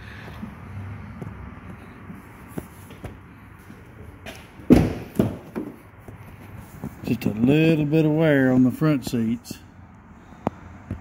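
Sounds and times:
car door slamming: 0:04.6 - 0:05.8.

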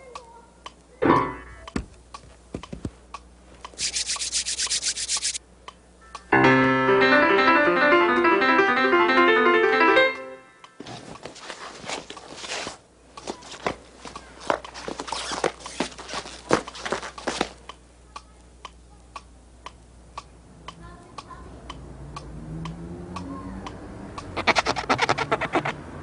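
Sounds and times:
rapid scratching: 0:03.8 - 0:05.4, 0:24.4 - 0:25.8
rustling: 0:10.8 - 0:17.6.

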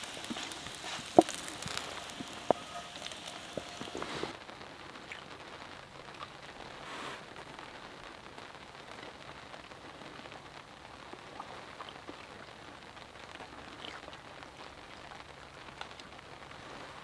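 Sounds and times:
light rain pattering: 0:00.0 - 0:17.0.

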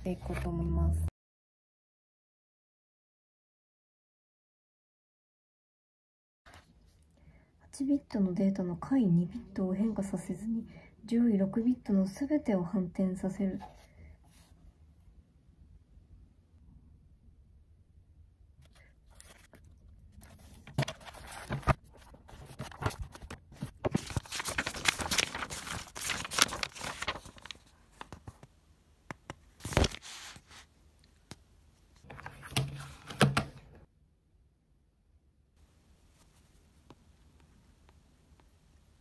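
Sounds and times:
notebook pages flipping: 0:00.1 - 0:00.5, 0:18.6 - 0:28.5, 0:29.1 - 0:30.7, 0:32.0 - 0:33.6.

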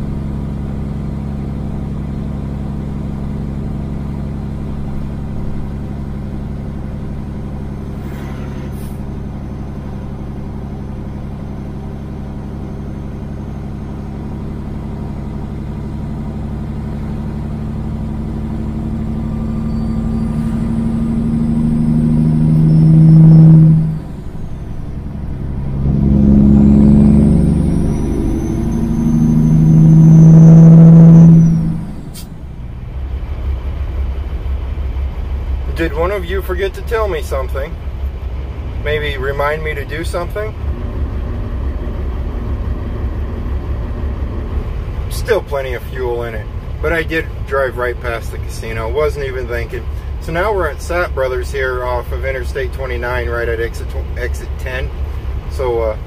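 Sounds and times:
truck diesel engine through straight pipes: 0:00.0 - 0:56.0
faint high whistle: 0:19.6 - 0:20.6, 0:22.4 - 0:24.6.

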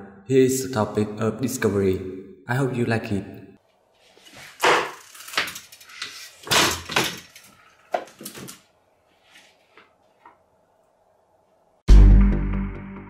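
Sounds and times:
objects knocking and clattering: 0:06.4 - 0:08.6.

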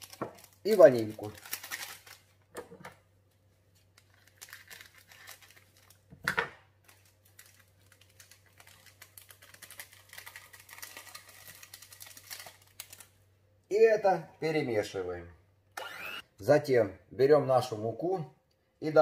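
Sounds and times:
sachet crinkling: 0:00.0 - 0:02.4, 0:03.7 - 0:06.1, 0:06.8 - 0:13.2
small crackles: 0:00.0 - 0:02.4, 0:03.7 - 0:06.1, 0:06.8 - 0:13.2.

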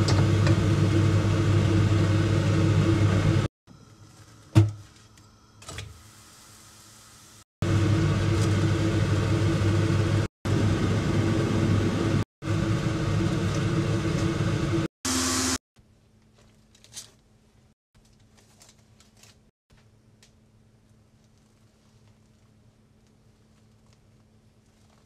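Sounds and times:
stove humming: 0:00.0 - 0:04.0, 0:05.6 - 0:15.6.

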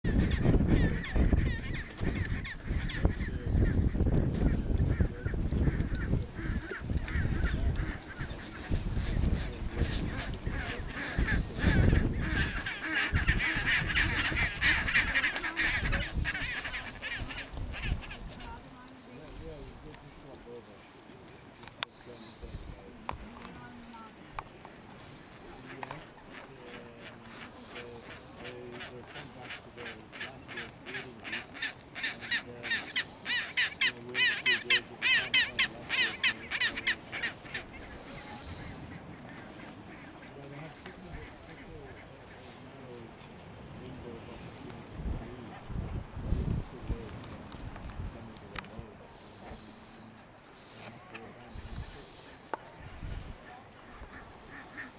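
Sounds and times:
penguins honking: 0:00.1 - 0:18.6, 0:25.6 - 0:42.6.

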